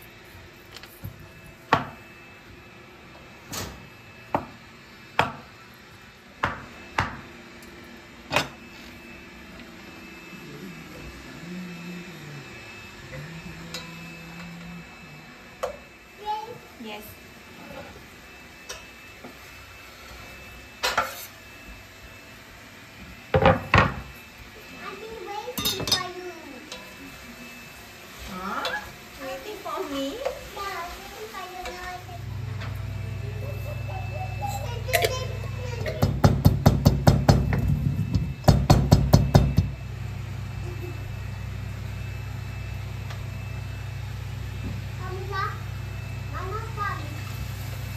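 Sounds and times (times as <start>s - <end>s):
steady low hum: 3.9s - 17.4s, 31.6s - 47.9s
stone pestle pounding in mortar: 36.0s - 37.6s, 38.4s - 39.7s.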